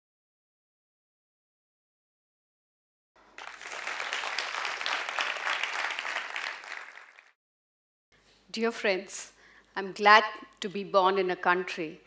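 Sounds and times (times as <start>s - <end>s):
audience applauding: 3.2s - 7.4s.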